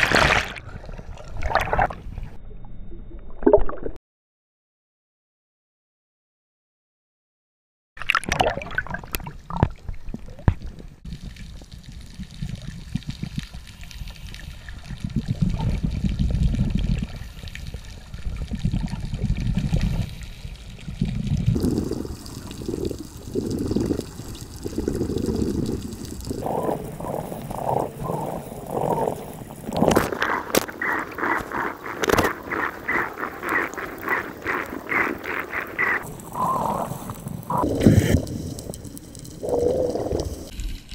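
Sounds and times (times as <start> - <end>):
regulator bubbles burbling underwater: 8.0 - 13.8, 14.6 - 40.8
water sloshing: 21.6 - 36.8.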